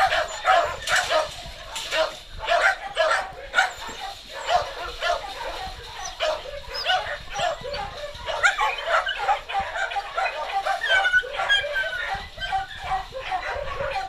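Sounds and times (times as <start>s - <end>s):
dogs barking and yipping: 0.0s - 14.0s
dog whining: 3.6s - 14.0s.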